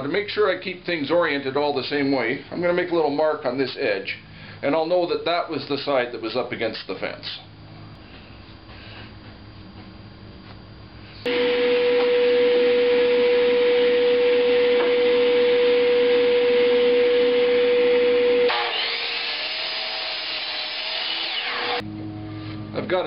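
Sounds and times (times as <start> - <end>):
miter saw whining: 11.3 - 21.9.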